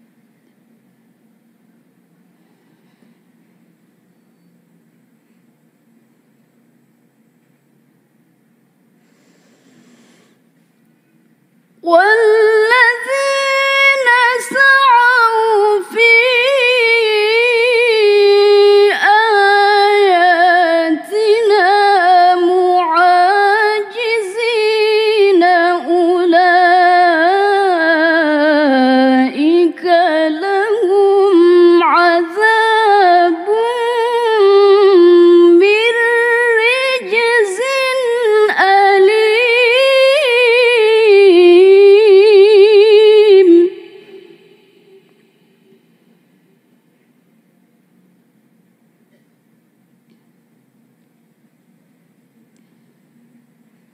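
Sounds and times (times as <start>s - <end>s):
woman reciting melodically: 11.8s - 45.2s.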